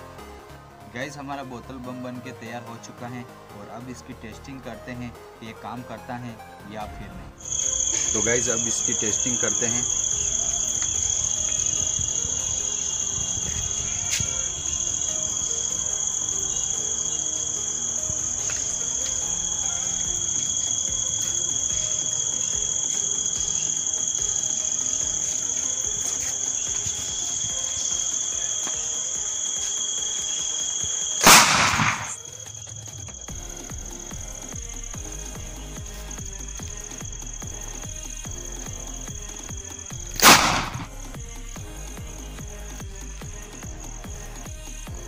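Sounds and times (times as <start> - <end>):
crickets chirping: 7.4 - 45.0
loud explosion burst: 31.2 - 32.2.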